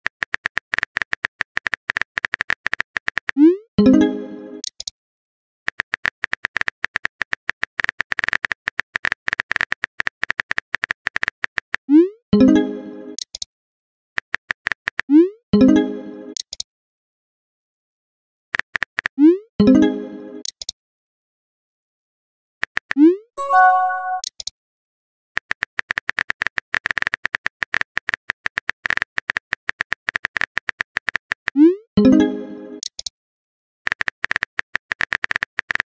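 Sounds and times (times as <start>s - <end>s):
keyboard typing clicks: 23.4s - 24.4s.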